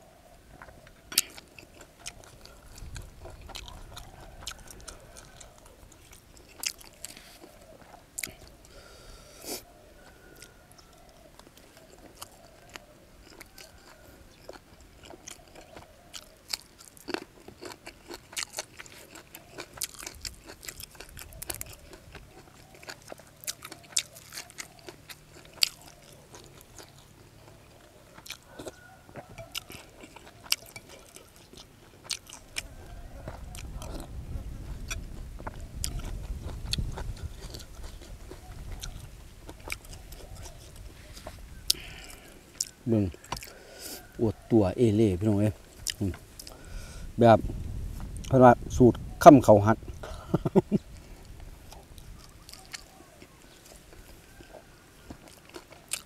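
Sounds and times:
person chewing crisp food: 0.0 - 47.1, 49.8 - 56.0
low rumble: 47.0 - 49.2.

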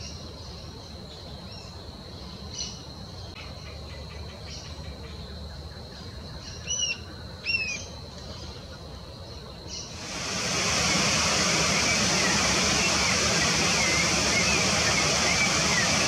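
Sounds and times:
thin high-pitched whine: 10.0 - 16.0.

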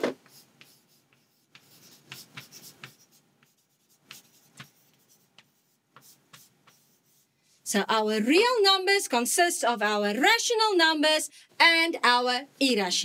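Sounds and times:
chalk scratching on chalkboard: 0.1 - 7.3.

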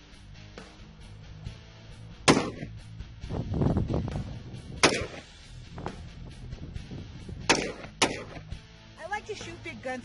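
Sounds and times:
background music: 0.0 - 10.0
rifle shot: 2.2 - 2.8, 4.8 - 5.3, 7.4 - 8.5.

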